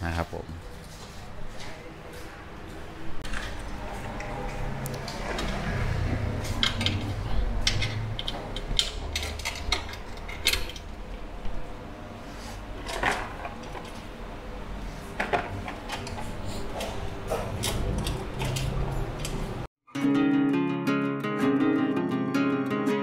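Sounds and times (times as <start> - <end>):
tools and metal parts clinking: 6.5 - 10.9.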